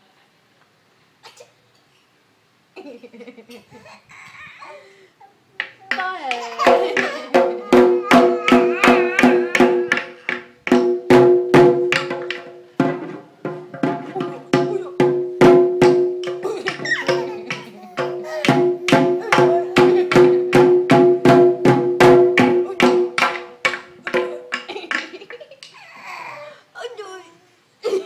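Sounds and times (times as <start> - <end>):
drum beaten with sticks: 5.9 - 25.3.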